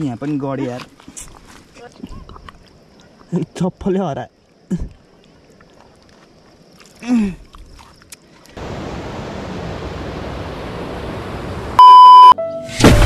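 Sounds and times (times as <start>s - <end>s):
river in flood rushing: 4.6s - 11.8s
test-card beep: 11.8s - 12.4s.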